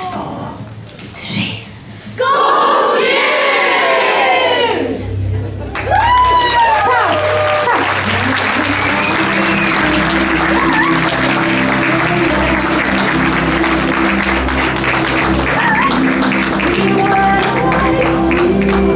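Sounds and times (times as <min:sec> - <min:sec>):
crowd applause: 0:05.4 - 0:18.9.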